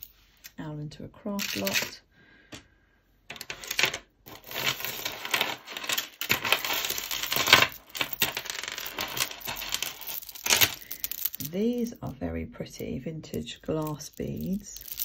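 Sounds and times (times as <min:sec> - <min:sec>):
beads and chains clinking: 0:00.0 - 0:00.5, 0:01.4 - 0:02.0, 0:03.3 - 0:12.0, 0:13.4 - 0:15.0
glass beads clicking together: 0:06.2 - 0:11.6, 0:13.8 - 0:15.0.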